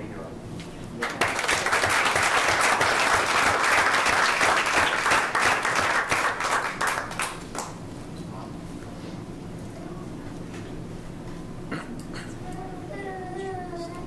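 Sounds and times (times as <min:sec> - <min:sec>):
crowd applauding: 0:01.0 - 0:07.7.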